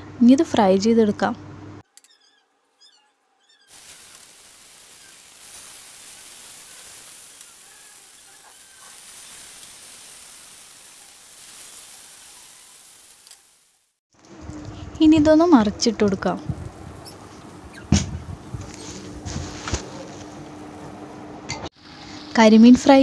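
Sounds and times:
fish sizzling in hot oil: 3.7 - 14.0, 16.5 - 19.2.

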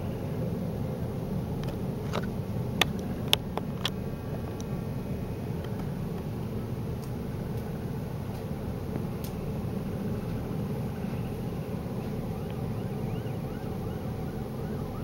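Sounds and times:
siren wailing: 11.3 - 15.0.

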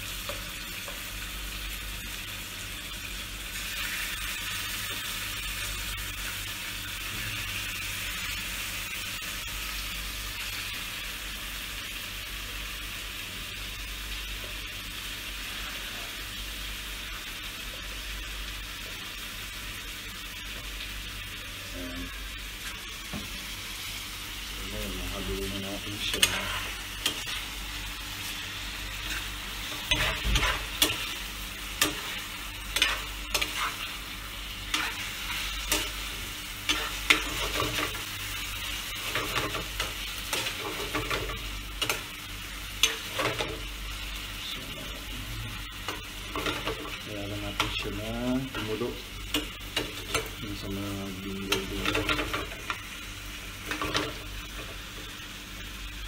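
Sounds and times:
chicken sizzling in a frying pan: 0.0 - 56.0
spatula scraping and tapping pan: 31.8 - 33.8.

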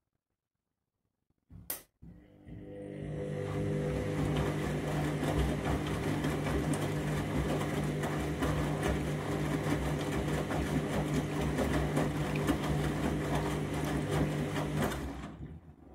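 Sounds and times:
washing machine motor humming: 2.0 - 15.9
water and laundry sloshing: 3.4 - 15.9.

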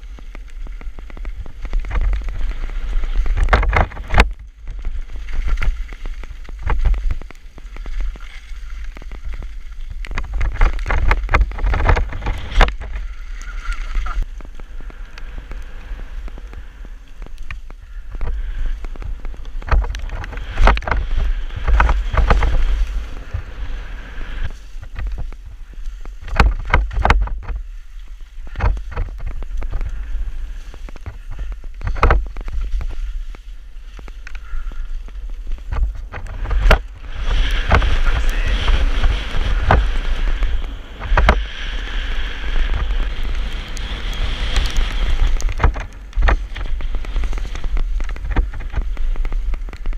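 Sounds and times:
bike knocks and rattles: 0.0 - 13.2, 24.5 - 27.6, 28.4 - 38.1, 44.5 - 49.9
tyre noise on wet dirt: 0.0 - 49.9
wind buffeting microphone: 0.0 - 49.9.

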